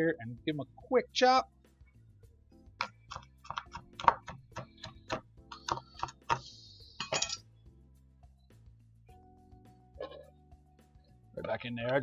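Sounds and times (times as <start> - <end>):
quiet background music: 0.0 - 12.0
knife chopping on wooden board: 2.8 - 6.5.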